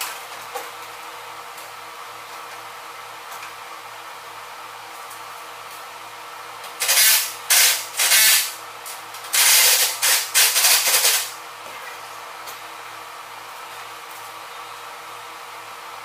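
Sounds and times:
tool cutting sheet metal: 6.8 - 8.6, 9.3 - 11.4.

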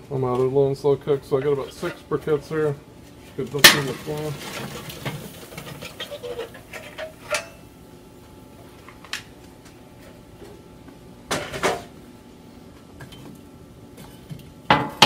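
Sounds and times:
charcoal clinking in metal basket: 3.4 - 7.7.

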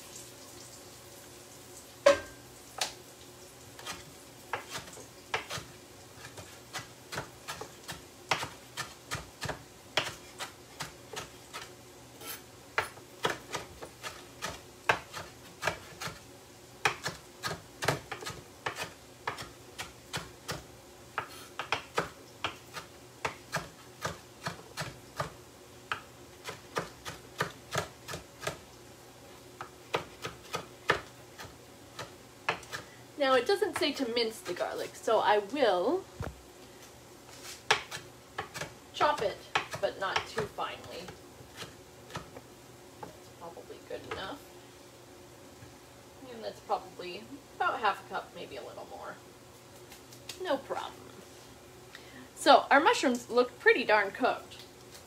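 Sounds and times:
knife chopping on wooden board: 3.8 - 16.2, 16.8 - 20.6, 21.2 - 28.6, 29.6 - 32.8, 37.7 - 42.3.

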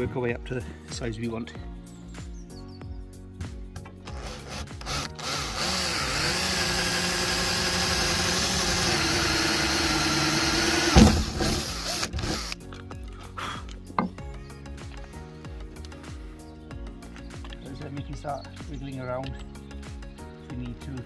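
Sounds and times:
electric drill boring metal: 4.1 - 12.6
loud knock: 10.9 - 11.6.

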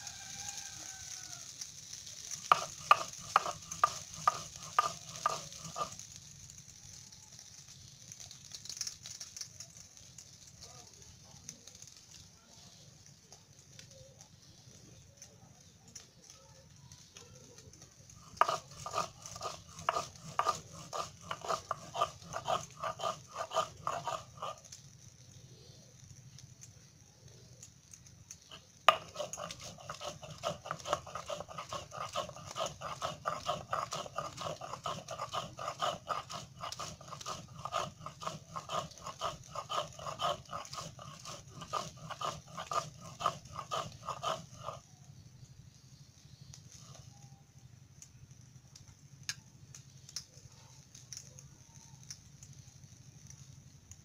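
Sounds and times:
stone grinding on stone slab: 2.0 - 6.0, 18.2 - 24.7, 28.4 - 44.8.

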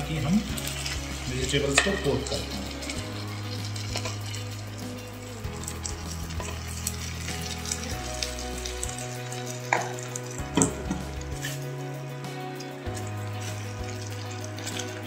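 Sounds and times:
vegetables sizzling in a frying pan: 0.0 - 15.0
spatula scraping and stirring sauce: 0.4 - 15.0
utensil clinking on metal: 0.6 - 3.0.

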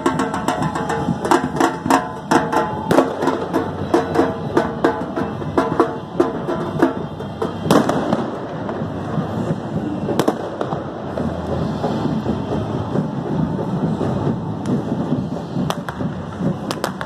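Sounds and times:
drums beating: 0.0 - 17.0
noisy background: 0.0 - 17.0
firecracker bangs: 6.8 - 8.9.

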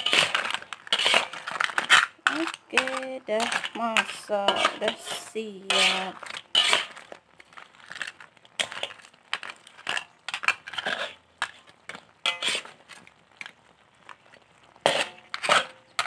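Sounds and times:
crab shells crunching: 0.0 - 5.1, 5.7 - 16.0
metal fork scraping on pot: 0.9 - 2.0, 2.8 - 6.9, 12.3 - 12.7.

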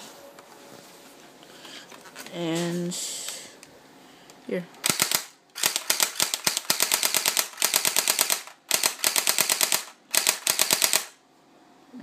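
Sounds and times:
airsoft rifle firing bursts: 4.8 - 11.2.

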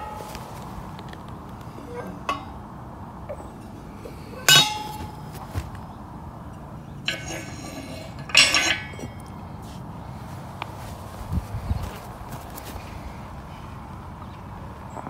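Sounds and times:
ringing metal clinks: 0.0 - 9.5.

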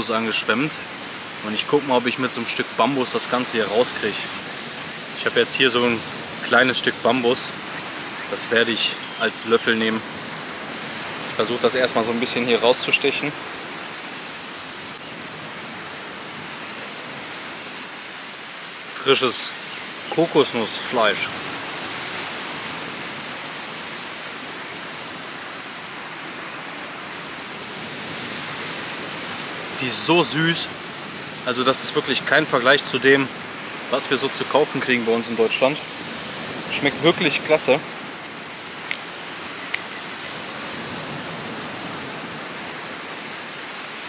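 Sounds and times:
surf breaking on beach: 0.0 - 13.8, 14.7 - 44.0.

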